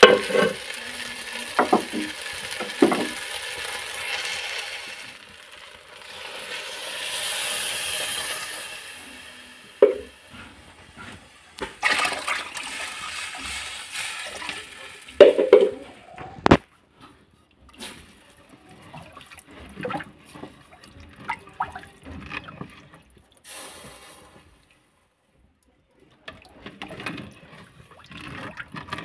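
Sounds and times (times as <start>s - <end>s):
water poured into pot: 0.0s - 16.6s, 17.6s - 25.1s, 26.0s - 29.0s
wooden spoon stirring rice: 0.0s - 24.5s, 26.0s - 29.0s
spoon knocking against pot: 9.8s - 10.2s.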